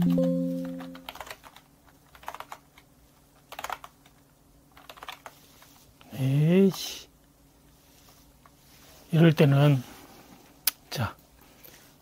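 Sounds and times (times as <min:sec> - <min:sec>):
computer keyboard typing: 0:00.0 - 0:05.3.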